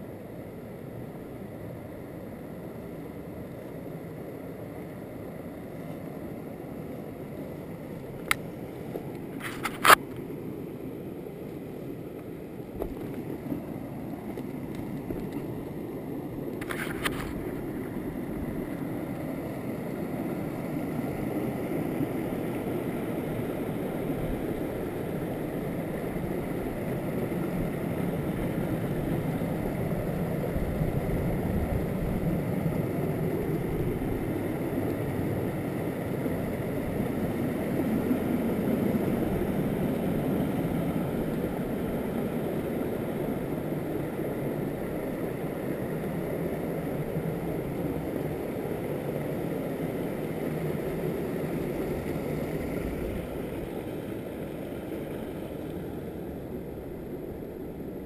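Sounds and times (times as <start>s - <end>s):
stream rushing over rocks: 4.0s - 58.0s
brief rustle or scrape: 9.4s - 10.0s, 16.6s - 17.4s.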